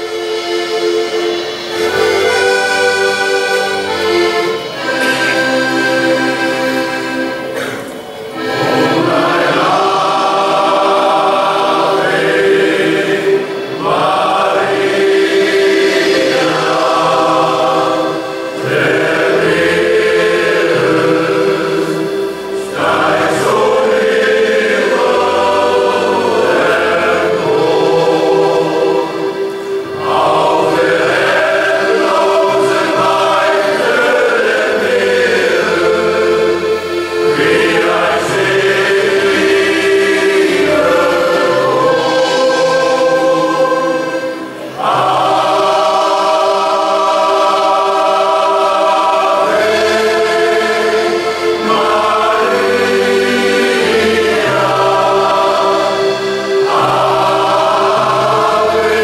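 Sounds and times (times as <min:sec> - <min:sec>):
men's choir singing in harmony: 0:00.0 - 0:59.0.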